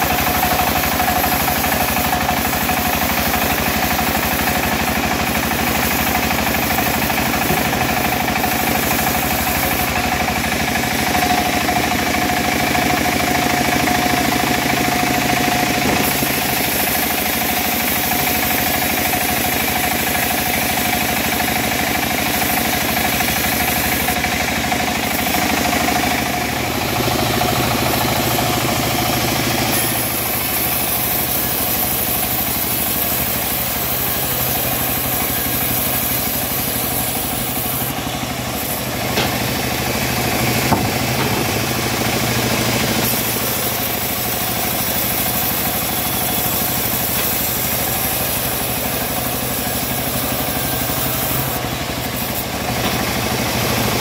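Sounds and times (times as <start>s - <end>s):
bandsaw mill cutting log: 0.0s - 54.0s
brief knocks: 40.6s - 41.6s.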